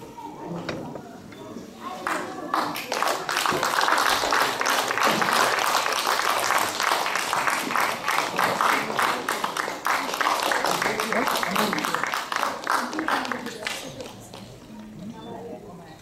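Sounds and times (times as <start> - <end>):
audience applauding: 2.0 - 14.4.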